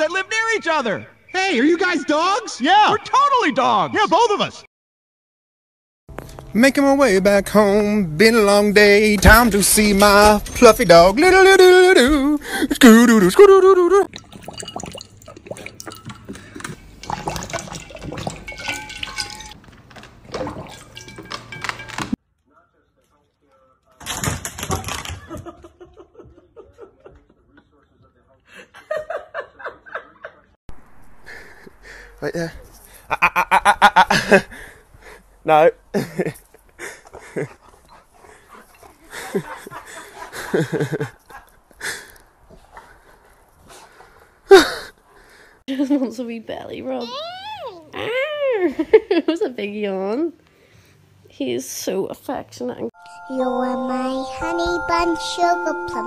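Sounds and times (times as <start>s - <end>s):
dog lapping water from metal bowl: 14.1s - 19.6s, 20.2s - 21.6s.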